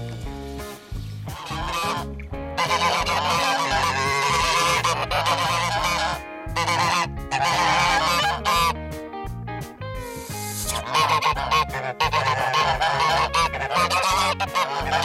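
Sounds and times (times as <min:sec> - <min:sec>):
geese honking: 0:01.3 - 0:08.8, 0:10.7 - 0:15.0.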